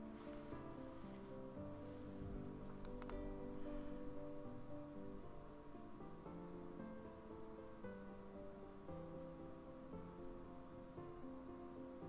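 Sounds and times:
soft instrumental music: 0.0s - 12.0s.

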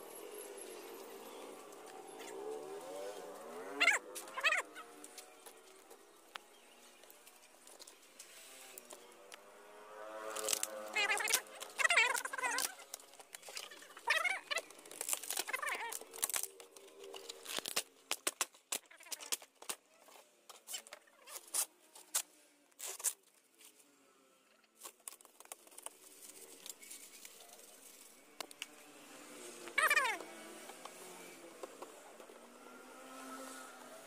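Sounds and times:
fiberglass mat tearing and crackling: 10.1s - 23.7s, 24.8s - 28.7s.

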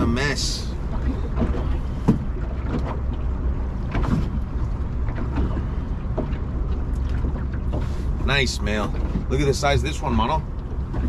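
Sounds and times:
water around boat: 0.0s - 11.0s
light knocks on boat: 0.9s - 7.9s.

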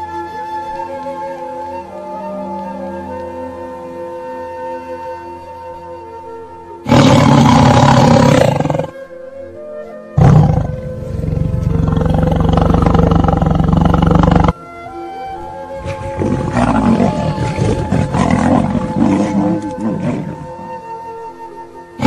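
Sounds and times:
background music: 0.0s - 22.0s
big cat roaring: 6.9s - 9.0s, 10.2s - 14.5s, 15.8s - 20.8s.

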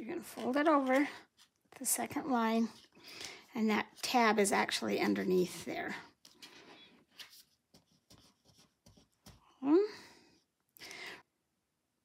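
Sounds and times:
paper rustling: 0.2s - 1.8s, 6.2s - 9.5s.

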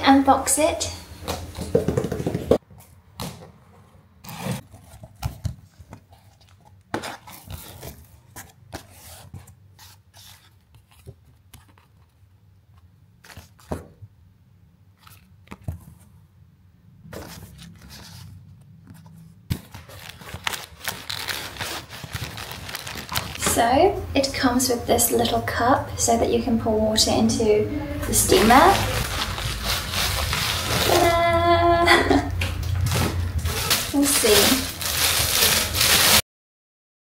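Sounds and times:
cardboard and paper rustling: 1.2s - 3.4s, 4.3s - 14.0s, 17.1s - 24.0s, 28.0s - 36.2s
plastic packing crinkling: 4.5s - 9.4s, 19.5s - 24.1s, 28.0s - 36.2s
packing tape tearing: 19.5s - 23.9s, 28.2s - 31.4s, 32.4s - 36.2s.

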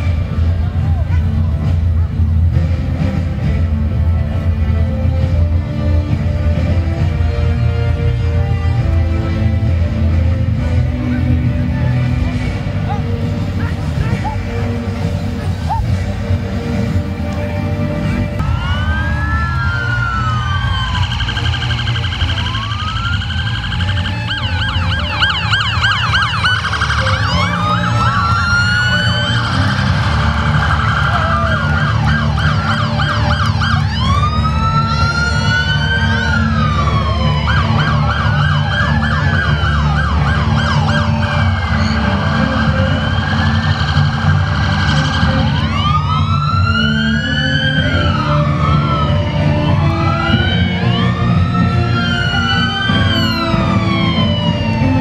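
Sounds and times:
police sirens wailing and yelping: 0.0s - 55.0s
steady low rumble: 0.0s - 55.0s.

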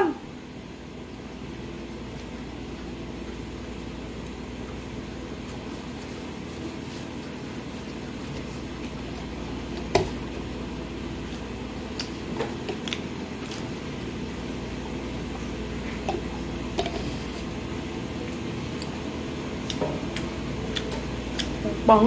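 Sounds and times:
room hum: 0.0s - 22.0s
chewing a sandwich: 11.2s - 13.8s.

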